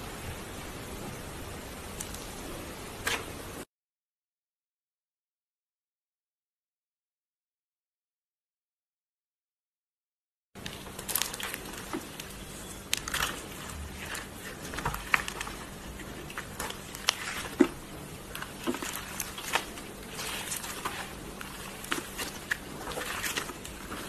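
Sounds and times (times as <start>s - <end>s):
hands squishing slime: 10.6s - 24.0s.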